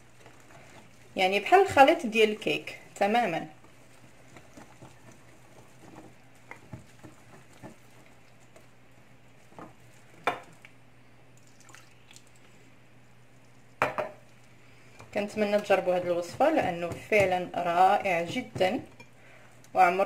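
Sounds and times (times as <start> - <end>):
whisk mixing batter: 0.0 - 10.8, 14.3 - 19.1.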